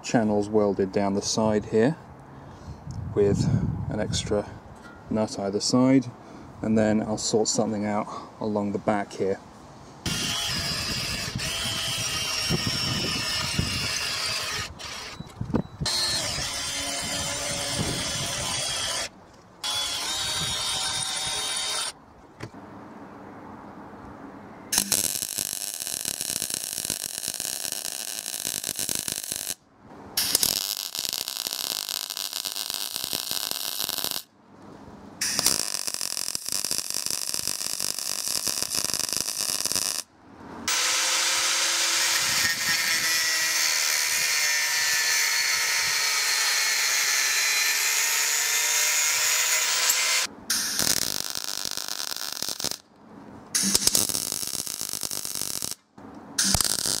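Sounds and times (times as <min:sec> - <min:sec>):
electric drill boring steel: 0:10.1 - 0:15.2, 0:15.9 - 0:22.0, 0:24.8 - 0:29.6, 0:40.7 - 0:52.8, 0:53.6 - 0:55.8
power tool running: 0:15.9 - 0:22.0, 0:40.7 - 0:44.2.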